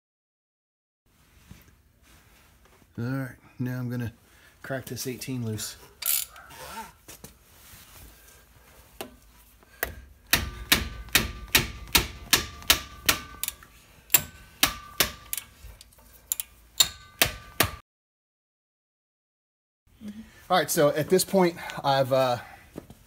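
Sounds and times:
ratchet wrench clicking: 0:06.0 - 0:06.4, 0:13.4 - 0:14.3, 0:16.2 - 0:17.0.

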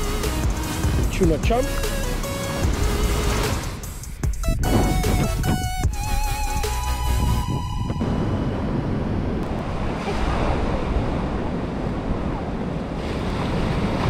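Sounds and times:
background music: 0:00.0 - 0:08.9
sea surf breaking: 0:00.1 - 0:14.0
wind buffeting microphone: 0:00.6 - 0:14.0.

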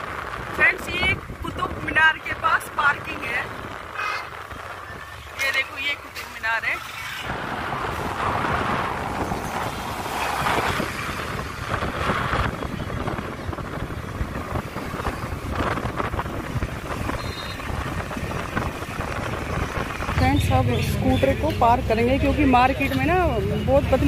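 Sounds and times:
road and traffic noise: 0:00.0 - 0:24.0
wind rushing over microphone: 0:00.0 - 0:24.0.

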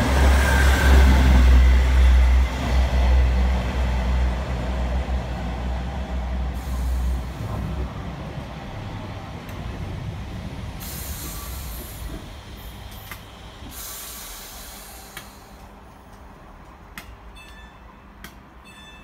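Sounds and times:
train rumble: 0:00.0 - 0:19.0
train hissing: 0:06.4 - 0:07.8, 0:10.6 - 0:15.7.

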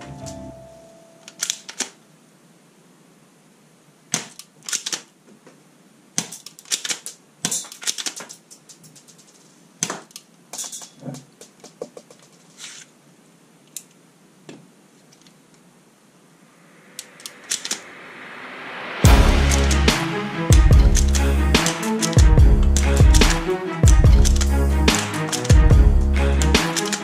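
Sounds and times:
toy pistol plastic clicks: 0:04.2 - 0:05.1, 0:06.2 - 0:08.8, 0:26.6 - 0:27.0.

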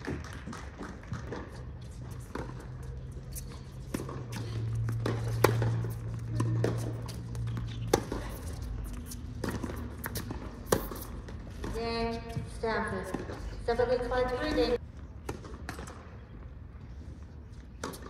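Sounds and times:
tennis ball bouncing: 0:00.0 - 0:16.2, 0:17.8 - 0:18.0
racket striking tennis ball: 0:02.1 - 0:13.4.

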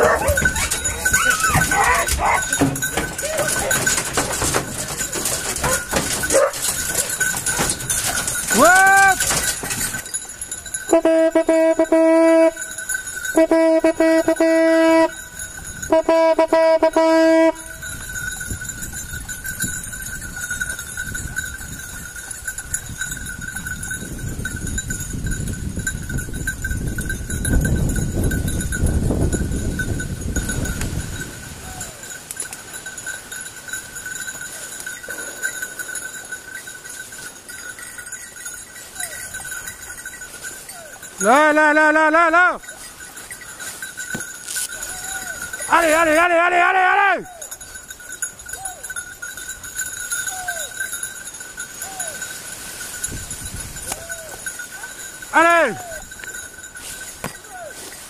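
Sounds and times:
hunting horn blasts: 0:10.9 - 0:12.7, 0:13.4 - 0:15.2, 0:15.9 - 0:17.8.

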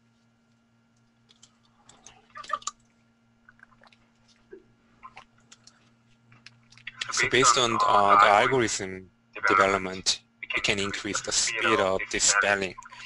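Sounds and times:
low electrical hum: 0:00.0 - 0:13.0
faint scattered clicks: 0:00.5 - 0:02.9, 0:05.1 - 0:07.1.

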